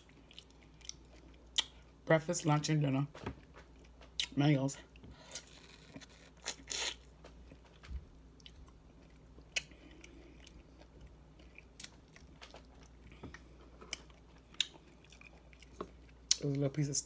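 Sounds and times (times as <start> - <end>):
person biting and chewing fruit: 3.4 - 16.5.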